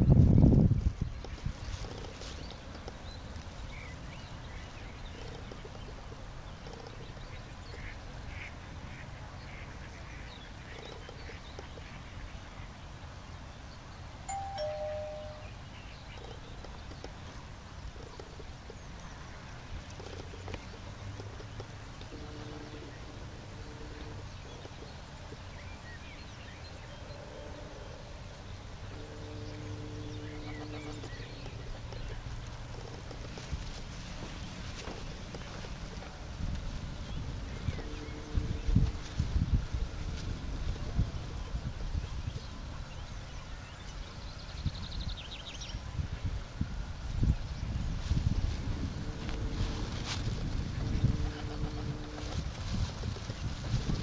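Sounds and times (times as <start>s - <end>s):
wind on microphone: 0.0s - 7.6s, 28.2s - 54.0s
low two-note hum: 14.3s - 15.6s, 28.8s - 32.2s.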